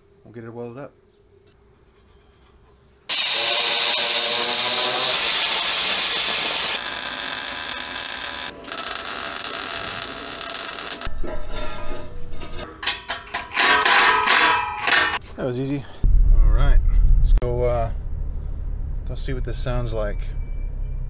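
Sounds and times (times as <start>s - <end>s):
power tool cutting steel tubing: 3.1s - 11.1s
welder crackling: 3.1s - 11.2s.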